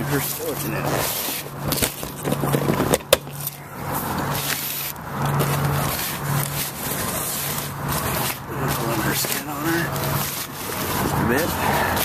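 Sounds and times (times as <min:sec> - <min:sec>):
fabric rubbing and scraping: 0:00.0 - 0:12.0.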